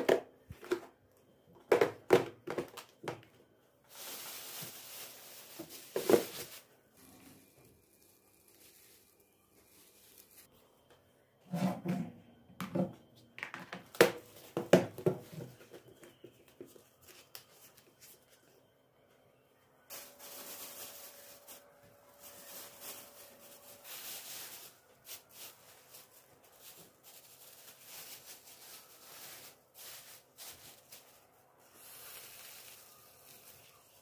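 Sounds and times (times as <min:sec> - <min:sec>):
plastic bags rustling: 0:03.9 - 0:10.5, 0:19.9 - 0:34.0.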